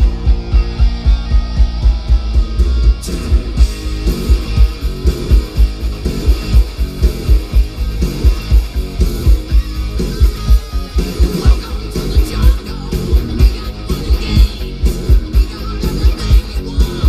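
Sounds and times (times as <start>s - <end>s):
rock music through car stereo: 0.0s - 17.0s.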